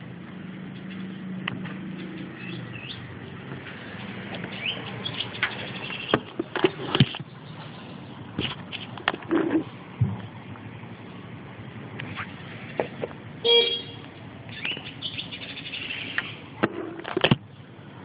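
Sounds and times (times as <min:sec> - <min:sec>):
sharp clicks and knocks: 0:00.7 - 0:02.4, 0:03.4 - 0:07.7, 0:08.3 - 0:10.3, 0:16.2 - 0:17.5
goldfinch chirping: 0:04.5 - 0:06.1, 0:14.5 - 0:16.4.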